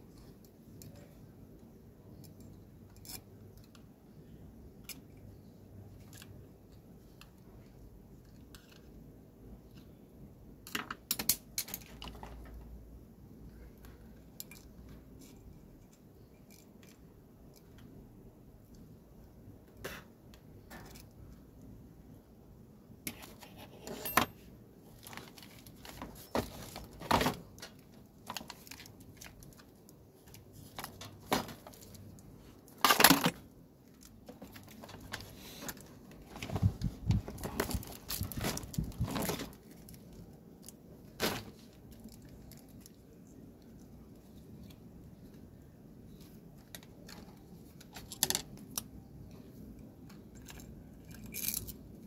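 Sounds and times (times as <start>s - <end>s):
plastic clatter: 30.3s - 32.0s, 32.7s - 39.7s.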